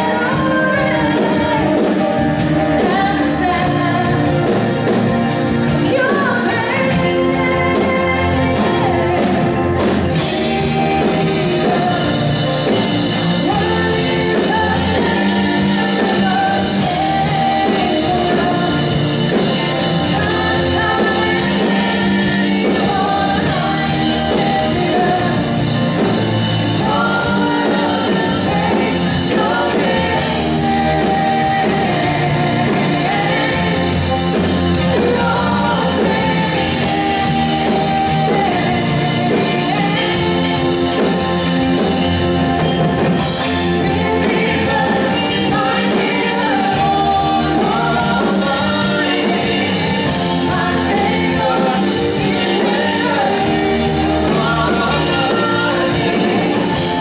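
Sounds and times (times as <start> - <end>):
live band playing worship song: 0.0 - 57.0
woman singing lead: 0.0 - 57.0.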